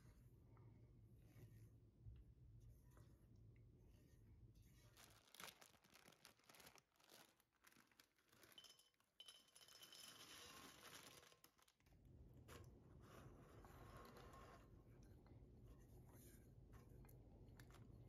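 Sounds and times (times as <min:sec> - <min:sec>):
plastic packet crinkling: 0:04.9 - 0:09.1, 0:10.2 - 0:12.0
biscuits clinking into glass bowl: 0:08.4 - 0:11.4.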